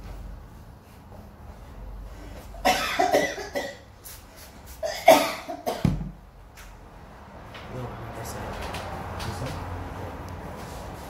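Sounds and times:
person coughing: 2.6 - 3.9, 4.8 - 6.0.

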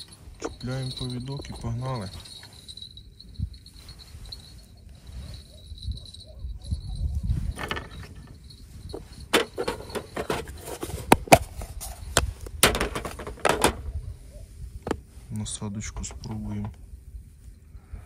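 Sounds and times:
fishing tackle clicks and rustles: 4.5 - 13.9.

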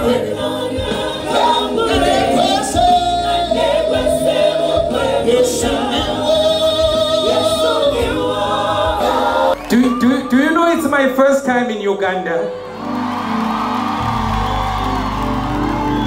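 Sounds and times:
band accompaniment: 0.0 - 9.6
gospel choir singing: 0.0 - 9.7.

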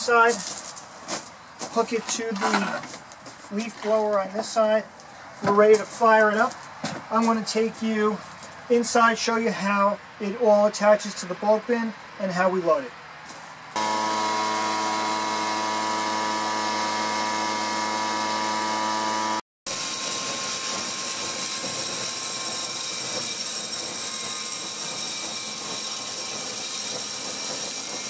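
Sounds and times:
leaf blower running: 13.8 - 28.0
pellets rushing through hose: 19.7 - 28.0.

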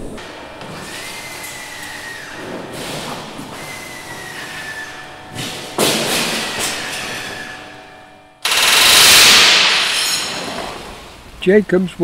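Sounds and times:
workshop noise: 0.0 - 12.0
pneumatic rivet gun rattling: 8.4 - 10.8.

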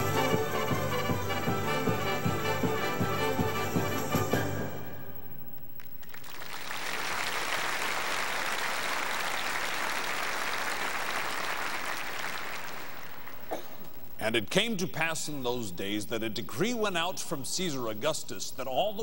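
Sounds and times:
large audience applauding: 5.8 - 13.5.

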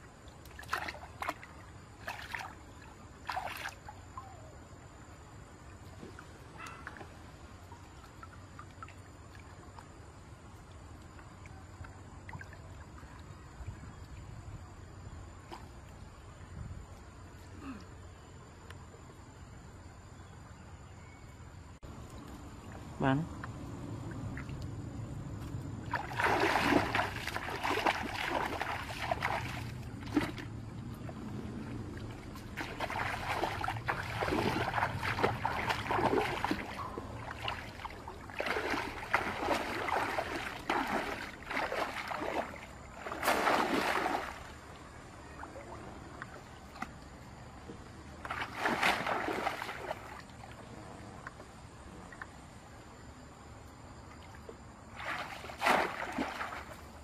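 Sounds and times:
muddy water splashing: 0.0 - 5.0, 21.9 - 51.3, 54.1 - 57.0.

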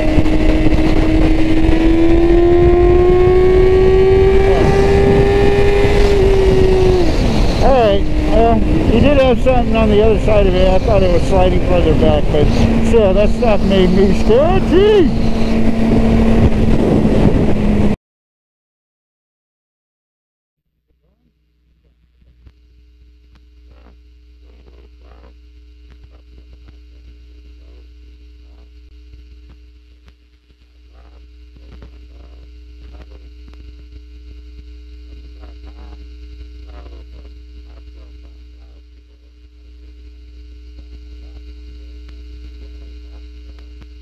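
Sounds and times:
electrical hum: 0.0 - 18.0, 21.0 - 44.0
low microphone rumble: 0.0 - 18.0.

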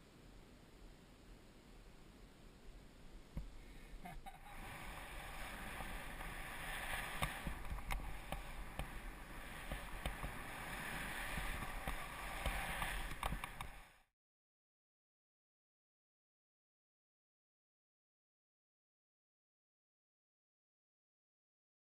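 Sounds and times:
low wind rumble: 0.0 - 14.1
skis scraping through snow: 3.6 - 14.1.

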